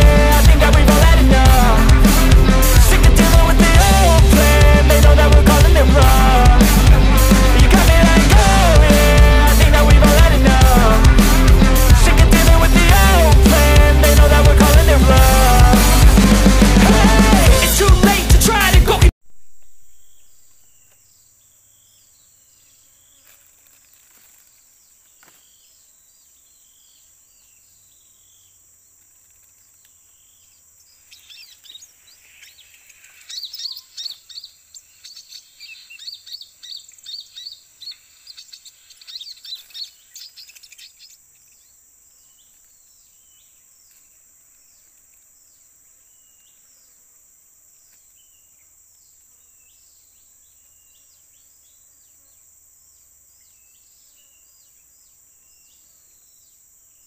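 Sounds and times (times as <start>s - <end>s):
small birds chirping: 19.6s - 57.0s.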